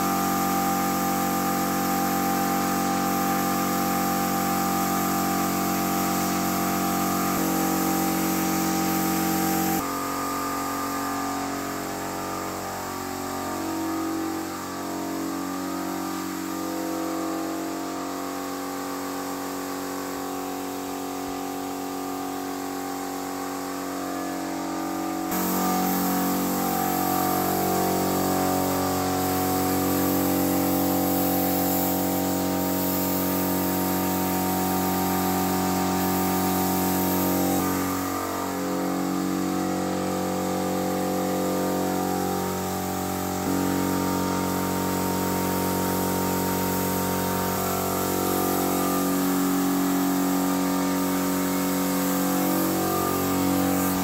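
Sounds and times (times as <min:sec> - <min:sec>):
spray gun hissing: 0:00.0 - 0:09.9, 0:24.7 - 0:54.0
air compressor humming: 0:00.0 - 0:10.0, 0:24.4 - 0:54.0.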